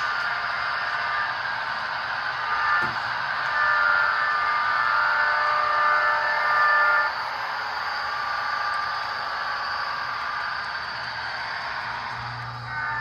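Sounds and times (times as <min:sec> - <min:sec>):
model railcar running sound: 0:00.0 - 0:13.0
multi-tone train horn: 0:02.4 - 0:07.2, 0:12.6 - 0:13.0.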